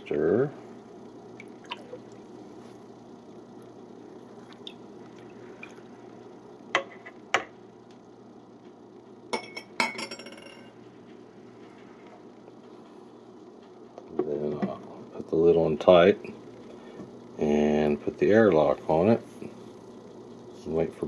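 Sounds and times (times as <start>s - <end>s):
low room noise: 0.0s - 21.0s.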